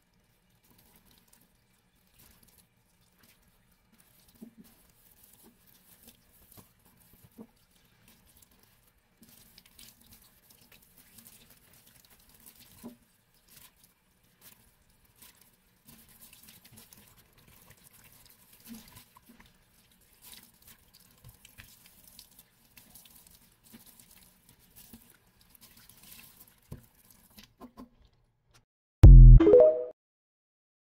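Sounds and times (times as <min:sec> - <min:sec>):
sponge scrubbing a sink: 0:00.6 - 0:27.5
short loud tone: 0:29.0 - 0:29.9.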